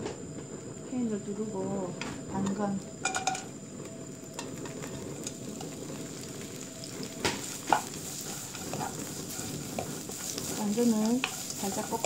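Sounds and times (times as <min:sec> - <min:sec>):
carrots sizzling in oil: 0:04.1 - 0:12.0
spatula knocking on pan: 0:07.2 - 0:12.0.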